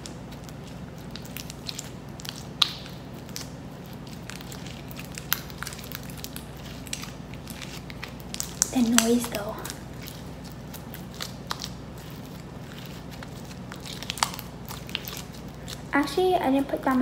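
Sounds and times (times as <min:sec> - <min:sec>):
slime squished wet clicks: 0:00.0 - 0:12.2.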